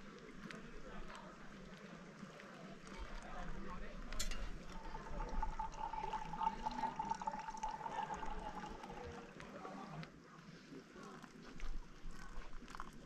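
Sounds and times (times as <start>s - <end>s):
liquid trickling into mug: 2.9s - 9.5s, 11.1s - 13.0s.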